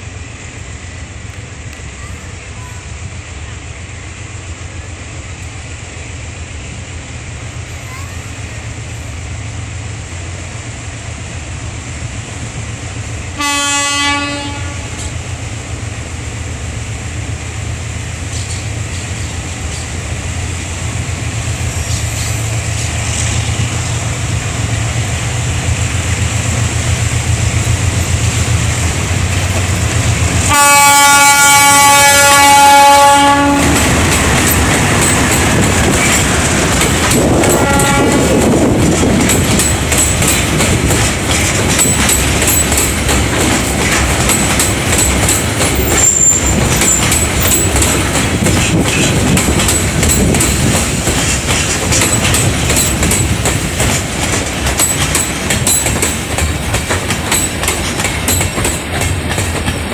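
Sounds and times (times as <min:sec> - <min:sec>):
diesel locomotive engine rumbling: 0:00.0 - 0:59.9
locomotive horn blasts: 0:13.4 - 0:15.1, 0:30.5 - 0:33.9, 0:37.4 - 0:38.3.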